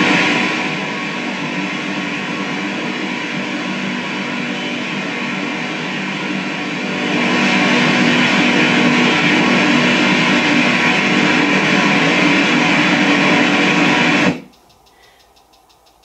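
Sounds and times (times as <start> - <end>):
hiss: 14.2 - 16.0.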